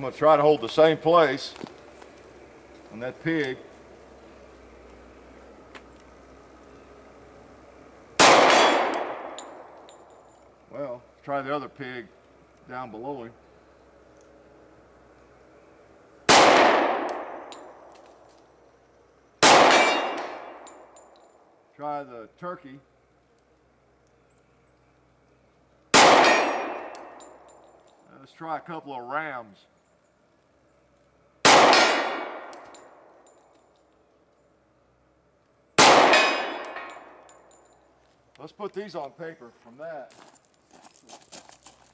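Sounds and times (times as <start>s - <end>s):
pistol shots with echo: 8.2s - 9.7s, 16.3s - 17.7s, 19.4s - 20.9s, 25.9s - 27.2s, 31.4s - 33.1s, 35.8s - 37.2s
bullets clanging on steel targets: 8.2s - 10.5s, 16.3s - 18.3s, 19.4s - 21.4s, 25.9s - 28.1s, 31.5s - 34.4s, 35.8s - 38.0s.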